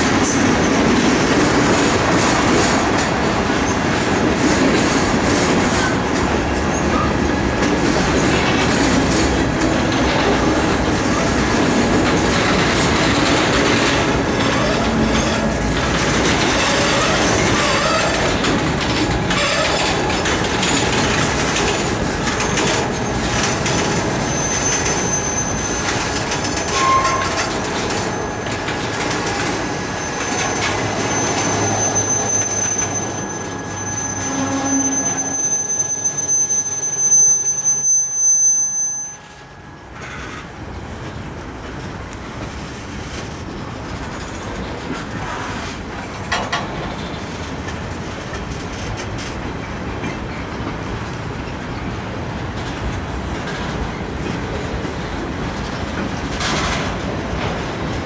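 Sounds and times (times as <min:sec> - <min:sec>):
freight train wheels rumbling on rails: 0:00.0 - 0:58.0
high wheel squeal: 0:05.7 - 0:07.4, 0:12.2 - 0:40.5.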